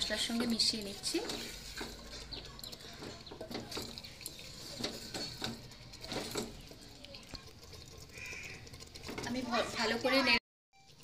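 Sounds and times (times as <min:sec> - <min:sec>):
spatula scraping clay pot: 0:00.0 - 0:10.4.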